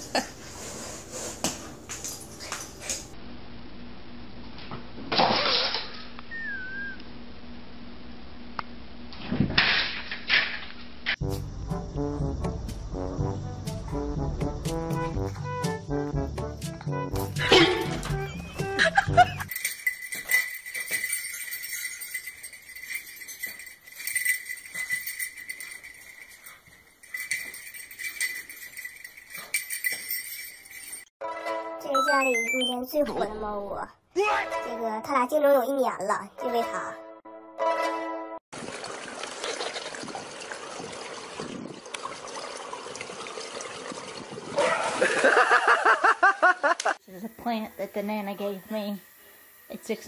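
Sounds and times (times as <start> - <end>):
bells jingling: 17.4 - 31.2
pool water splashing: 38.5 - 45.8.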